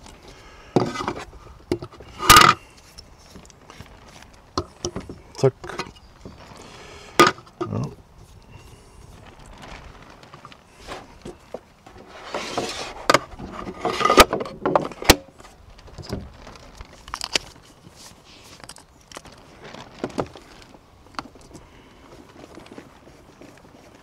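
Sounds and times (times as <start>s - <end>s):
parts rattling and scraping: 0.0s - 7.8s, 8.6s - 16.4s.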